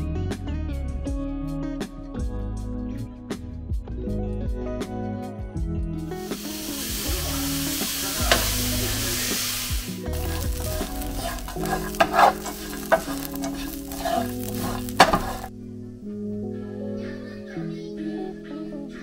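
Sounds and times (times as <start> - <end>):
syrup sizzling in a frying pan: 6.2 - 15.5
wooden spatula scraping a pan: 6.4 - 15.5.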